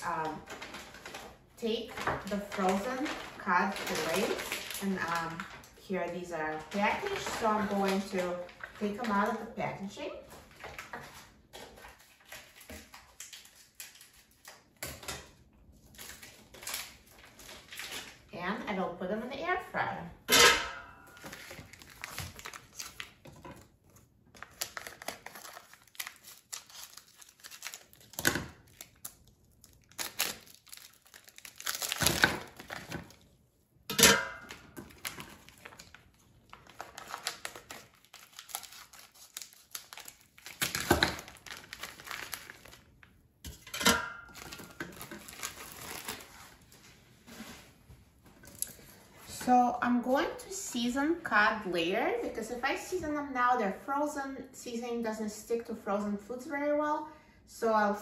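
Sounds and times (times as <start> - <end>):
plastic packaging crinkling and tearing: 0.0 - 9.5, 10.2 - 18.3, 21.1 - 33.4, 34.4 - 43.7, 44.3 - 47.7.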